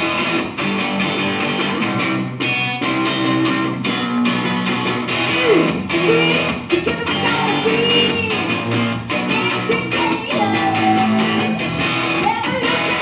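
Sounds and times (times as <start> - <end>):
electric guitar: 0.0 - 13.0
woman singing into microphone: 5.3 - 13.0.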